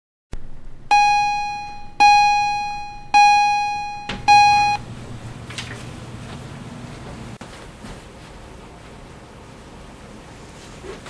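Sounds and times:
high keyboard note ringing: 0:00.9 - 0:04.8.

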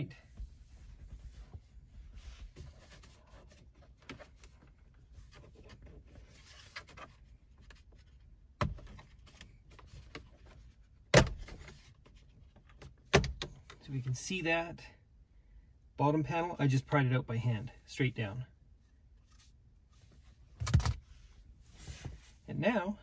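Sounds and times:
faint rubbing and handling: 0:00.1 - 0:08.4, 0:18.0 - 0:22.6.

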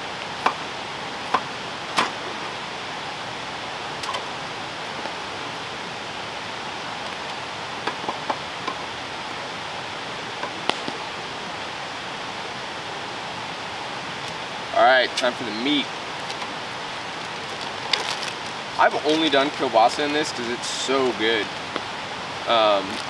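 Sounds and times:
steady background hiss: 0:00.0 - 0:23.0.

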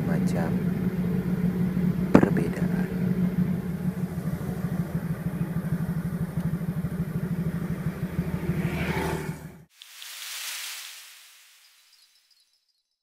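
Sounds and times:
motorcycle engine running: 0:00.0 - 0:09.7.

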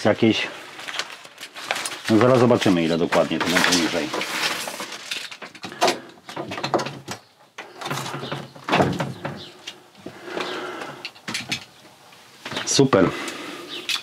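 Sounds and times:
plastic scraping: 0:00.7 - 0:11.7.

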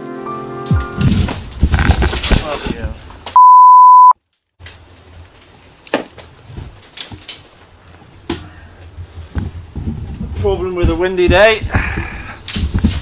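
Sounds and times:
censor bleep: 0:03.4 - 0:04.2.

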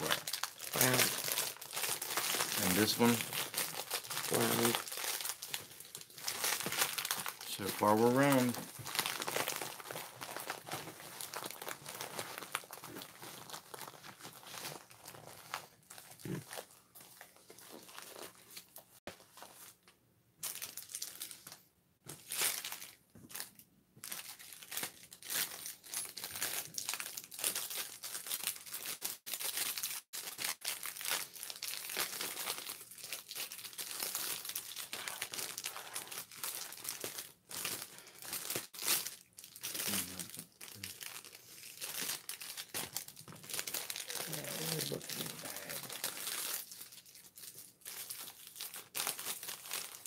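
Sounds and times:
plastic packaging crinkling: 0:00.0 - 0:50.0.

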